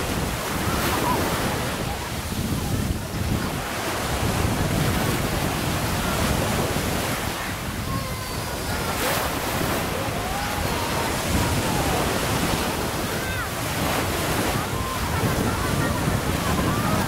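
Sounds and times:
small waves breaking on beach: 0:00.0 - 0:17.0
wind buffeting microphone: 0:00.0 - 0:17.0.

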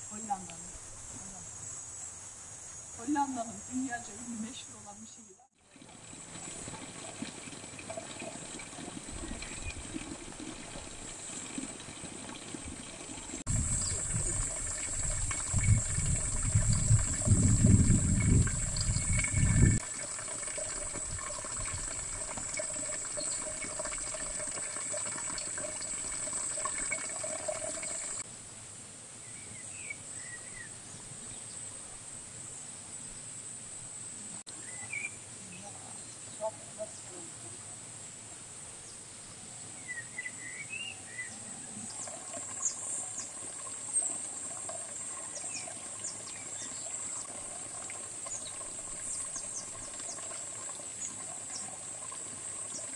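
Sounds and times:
wind rumble on microphone: 0:13.5 - 0:19.8.

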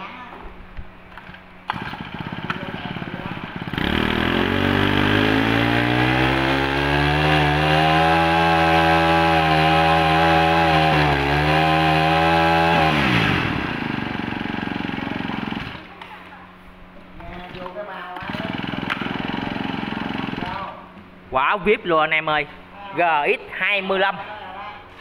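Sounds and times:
brush-cutter engine revving: 0:01.7 - 0:15.9, 0:18.2 - 0:20.8.

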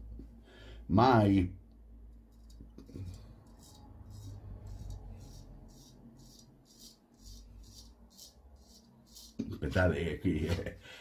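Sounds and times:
razor scraping stubble: 0:02.3 - 0:09.5.

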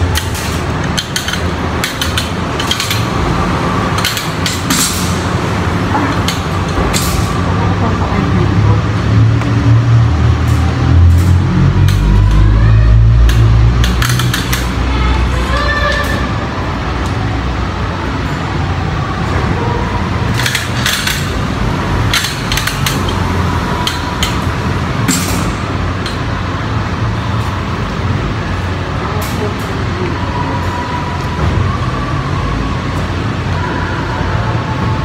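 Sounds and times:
cart clanking: 0:00.0 - 0:08.4, 0:19.0 - 0:32.2.

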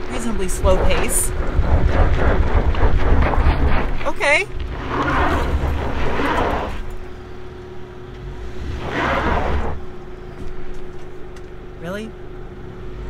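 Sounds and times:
tyres spinning and spraying dirt: 0:00.0 - 0:11.7
car engine under load: 0:00.0 - 0:13.0
steady whine: 0:00.0 - 0:13.0.

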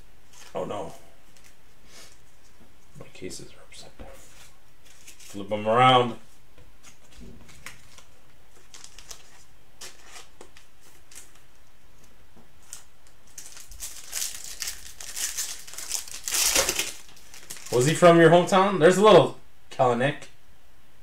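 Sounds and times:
foil wrapper crinkling and tearing: 0:07.0 - 0:11.5, 0:12.6 - 0:18.0.

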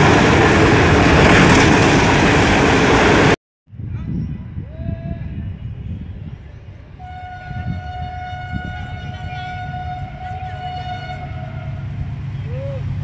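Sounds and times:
locomotive air horn blast: 0:07.0 - 0:11.9.

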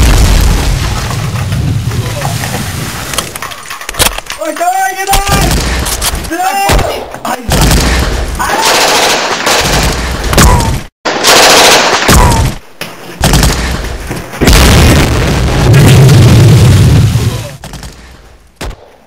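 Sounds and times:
automatic gunfire bursts: 0:08.6 - 0:10.0, 0:11.2 - 0:12.1.

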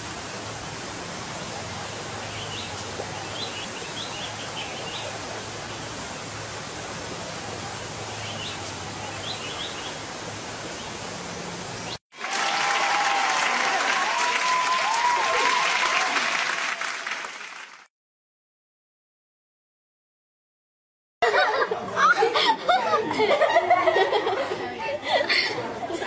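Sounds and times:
steady hiss with low hum: 0:00.0 - 0:15.3
crowd applause: 0:12.1 - 0:17.9.

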